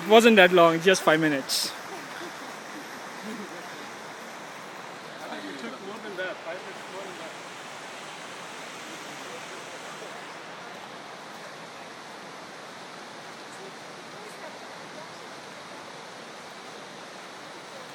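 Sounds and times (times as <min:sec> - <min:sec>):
creek water rushing: 0:00.0 - 0:17.9.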